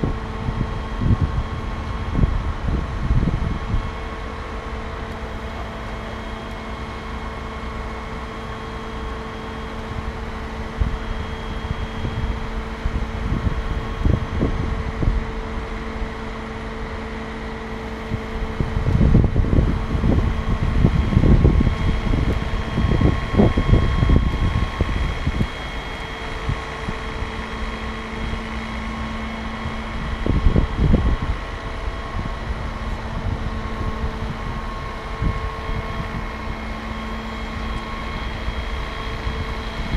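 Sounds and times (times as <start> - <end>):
wind buffeting microphone: 0.0 - 8.5, 9.1 - 39.9
fire truck machinery humming: 0.0 - 39.9.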